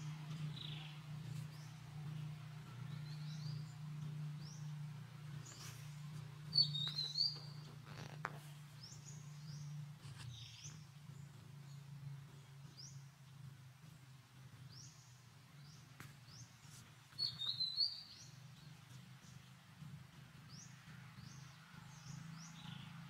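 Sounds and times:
steady low hum: 0.0s - 23.0s
high short chirping calls: 6.5s - 7.8s.

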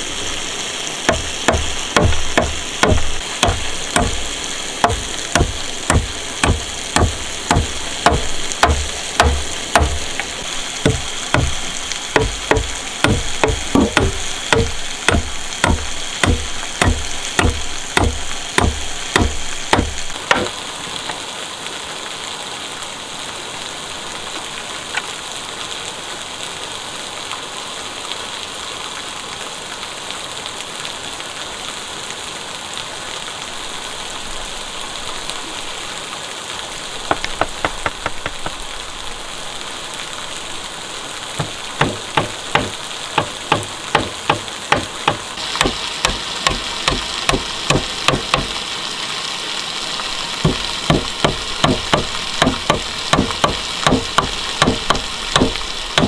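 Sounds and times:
steady hiss: 0.0s - 56.0s
repeated sharp blows: 4.8s - 20.6s, 41.4s - 48.5s.

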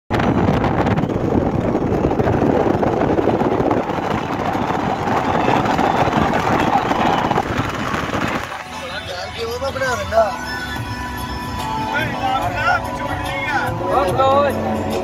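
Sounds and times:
car driving through tunnel: 0.1s - 11.6s.

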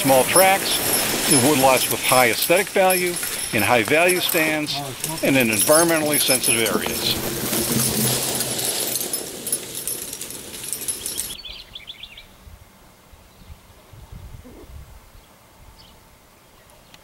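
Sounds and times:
log dragging over frosty leaves: 0.0s - 11.4s
metal clinks: 0.0s - 11.4s.

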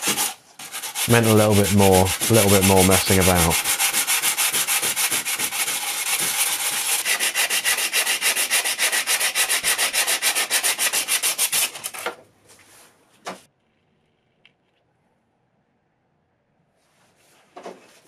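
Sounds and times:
sandpaper rubbing on metal: 0.0s - 12.0s.

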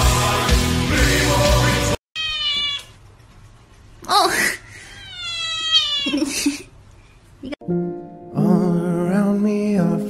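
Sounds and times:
kitten meowing: 2.2s - 3.0s, 5.0s - 6.2s.

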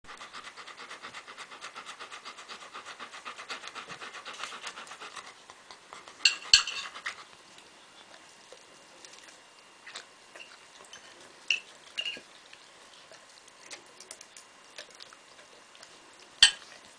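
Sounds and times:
dog panting rapidly: 0.1s - 7.3s
fork and knife clinking: 6.3s - 6.9s, 10.9s - 12.2s, 16.4s - 16.6s.

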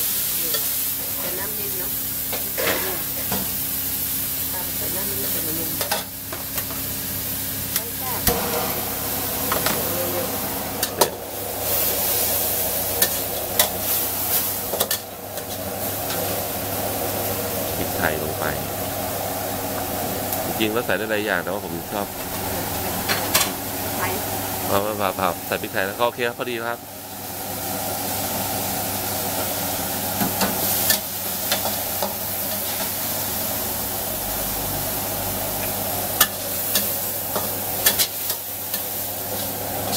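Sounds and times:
food sizzling in a wok: 0.0s - 39.9s.

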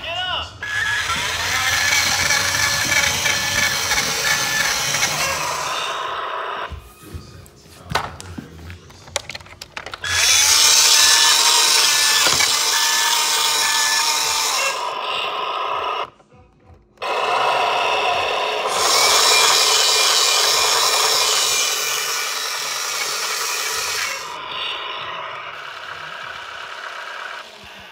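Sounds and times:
toy motor and gears whirring: 0.6s - 6.7s, 9.8s - 16.1s, 17.0s - 27.9s.

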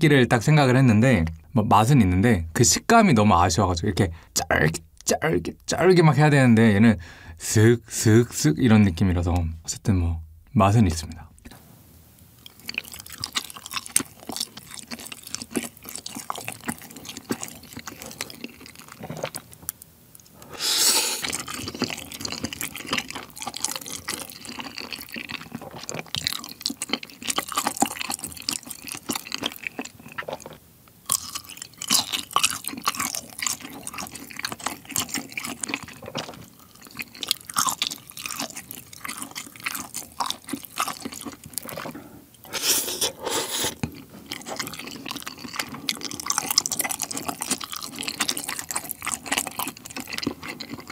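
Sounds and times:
wet chewing and mouth smacking: 12.4s - 20.4s, 21.0s - 50.9s.

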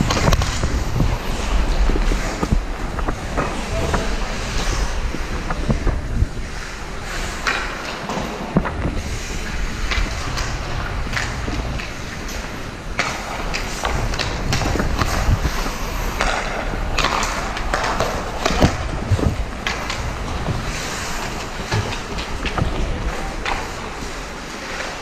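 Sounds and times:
low rumble: 0.0s - 7.4s
skate blades scraping ice: 0.0s - 25.0s
sticks and puck clacking: 0.0s - 25.0s.

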